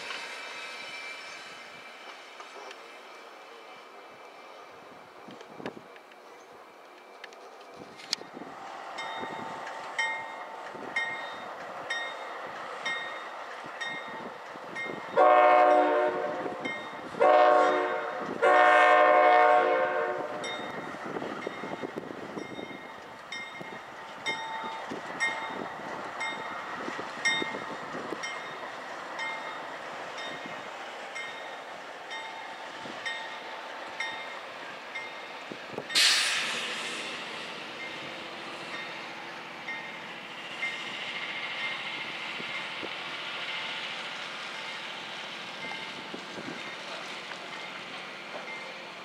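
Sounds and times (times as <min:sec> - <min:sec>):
freight cars rumbling and clicking: 0:05.2 - 0:15.1, 0:20.3 - 0:49.0
crossing bell ringing: 0:09.0 - 0:18.3, 0:20.3 - 0:30.6, 0:31.2 - 0:36.0, 0:37.7 - 0:42.9, 0:47.5 - 0:48.9
locomotive horn blasts: 0:15.2 - 0:20.5.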